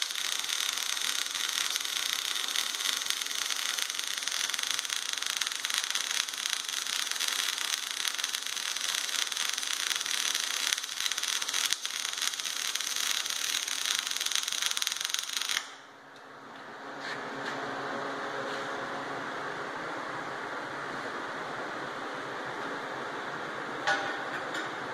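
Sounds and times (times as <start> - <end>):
welding arc crackling hiss: 0.0 - 15.8.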